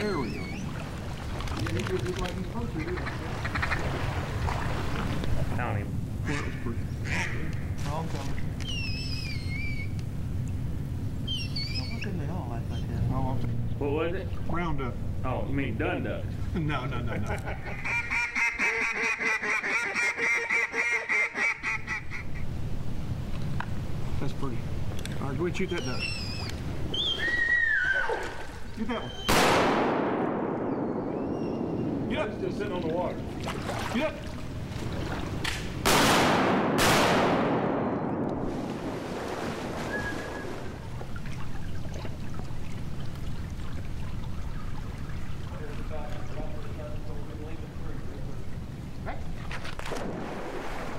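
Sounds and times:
dog splashing through water: 0:00.0 - 0:02.5, 0:32.8 - 0:35.4
duck call quacking: 0:06.3 - 0:07.4, 0:17.6 - 0:22.4
shotgun shots echoing: 0:29.2 - 0:31.3, 0:35.5 - 0:38.2.

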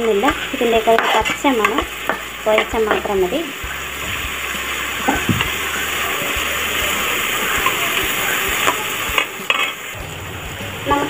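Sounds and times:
skimmer scraping a pan: 0:00.0 - 0:10.0
vegetables sizzling in oil: 0:00.0 - 0:11.0.

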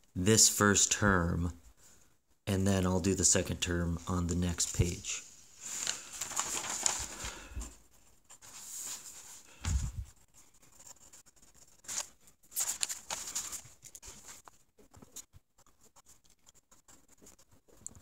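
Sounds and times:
paper page rustling: 0:04.5 - 0:15.3
pencil scratching on paper: 0:10.2 - 0:12.1, 0:15.0 - 0:17.8.

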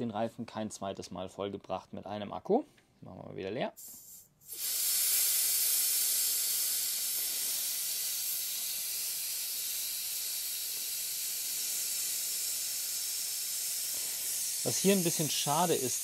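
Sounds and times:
air hissing from tyre valve: 0:03.8 - 0:16.0.

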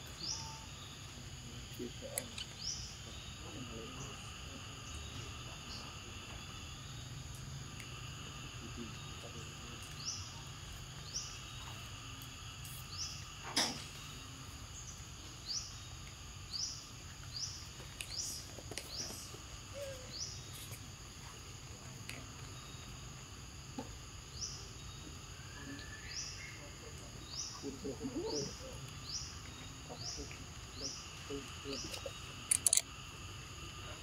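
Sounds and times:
bird chirping: 0:00.0 - 0:07.2
insect drone: 0:00.0 - 0:34.0
sharp click: 0:31.9 - 0:32.9.

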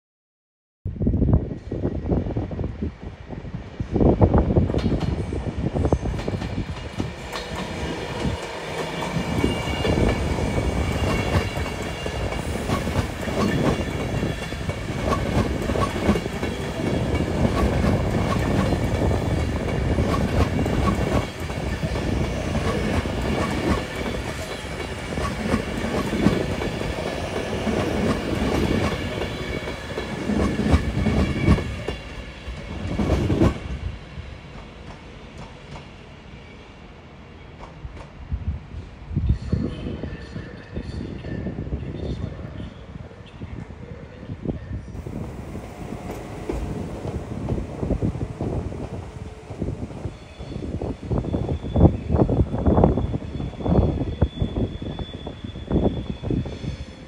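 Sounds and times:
train rumble: 0:01.0 - 0:36.0, 0:44.4 - 0:57.0
train wheels clattering over rail joints: 0:45.0 - 0:51.6.

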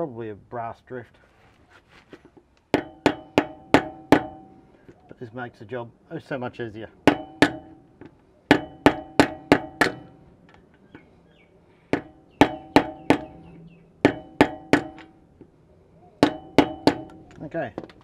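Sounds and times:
mallet knocking metal tool: 0:02.7 - 0:04.5, 0:07.0 - 0:07.8, 0:08.5 - 0:10.2, 0:11.9 - 0:13.4, 0:14.0 - 0:15.2, 0:16.2 - 0:17.5.

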